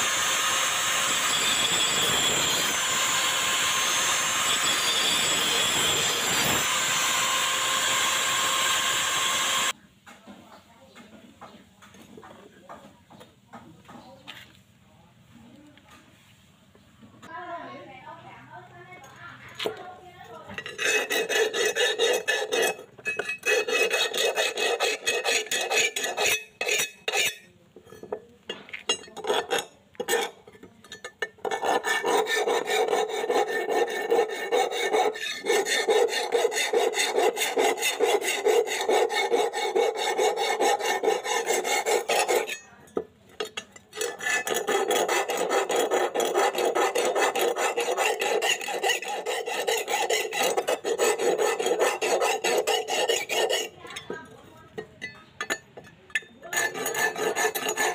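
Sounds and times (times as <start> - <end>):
file rasping on steel: 0.0 - 9.8, 20.4 - 42.8, 43.4 - 57.9.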